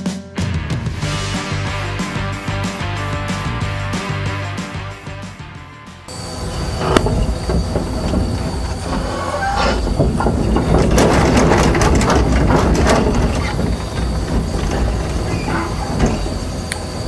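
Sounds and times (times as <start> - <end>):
thin high whine: 6.1 - 10.3
crawler tracks clanking and squeaking: 6.1 - 17.0
excavator diesel engine running: 6.1 - 17.0.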